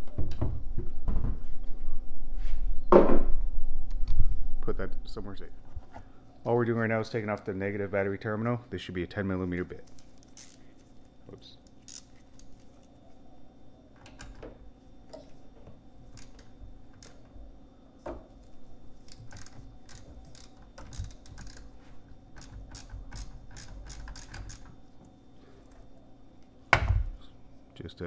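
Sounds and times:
hand ratchet clicking: 10.2s - 10.6s, 11.9s - 12.6s, 19.0s - 21.7s, 22.3s - 24.8s.

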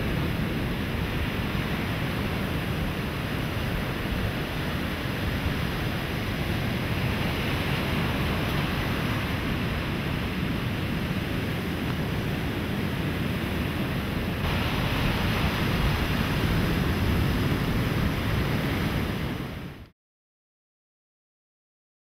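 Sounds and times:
ocean surf washing up beach: 0.0s - 19.9s.

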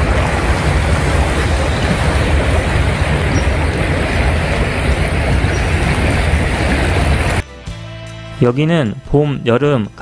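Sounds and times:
stream rushing: 0.0s - 7.4s.

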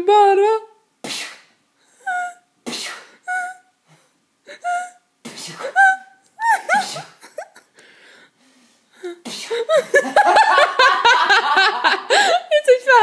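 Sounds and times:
woman laughing hard: 5.6s - 7.8s, 9.5s - 12.6s.

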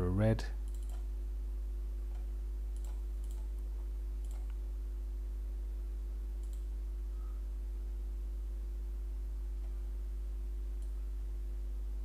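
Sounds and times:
low electrical hum: 0.0s - 12.0s
computer mouse clicks: 0.6s - 1.1s, 2.1s - 4.6s, 6.4s - 6.8s, 10.8s - 11.0s.

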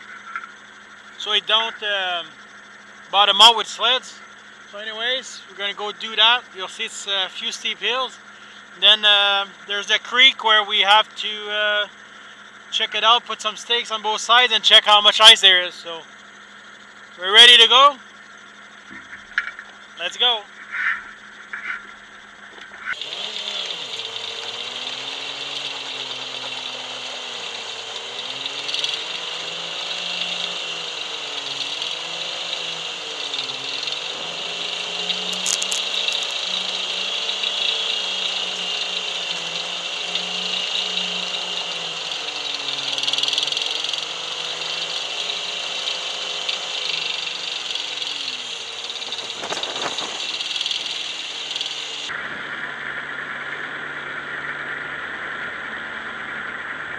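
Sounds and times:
tractor diesel engine under load: 22.9s - 56.9s.

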